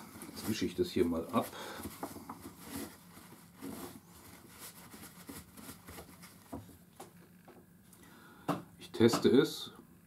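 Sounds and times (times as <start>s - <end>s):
faint rubbing: 0.0s - 6.5s.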